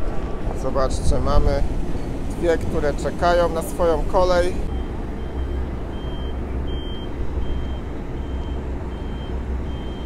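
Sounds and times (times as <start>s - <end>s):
diesel truck engines rumbling: 0.0s - 10.0s
reversing alarm beeps: 4.7s - 10.0s.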